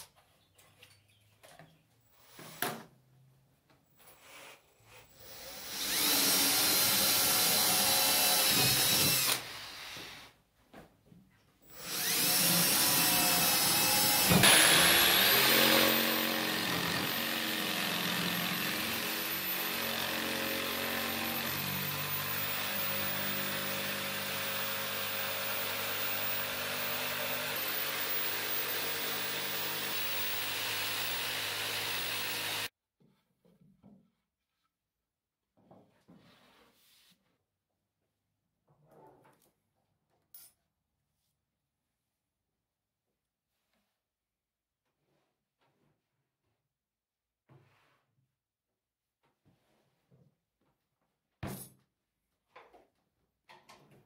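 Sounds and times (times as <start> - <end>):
jigsaw cutting board: 4.0 - 10.3, 11.7 - 32.7.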